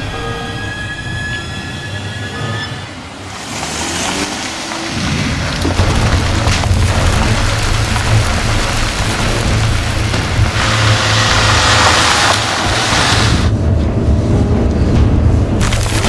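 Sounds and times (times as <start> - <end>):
tyres on gravel road: 2.8 - 13.6, 15.5 - 16.0
car engine rumble: 3.1 - 16.0.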